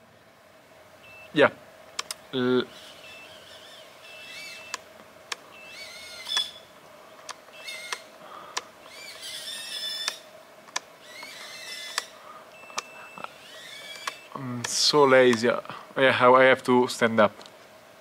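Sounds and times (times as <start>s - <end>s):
steady faint hum: 0.0s - 18.0s
sharp clicks: 1.9s - 2.2s, 3.6s - 6.6s, 7.2s - 15.5s
birds chirping: 2.2s - 4.8s, 5.4s - 10.3s.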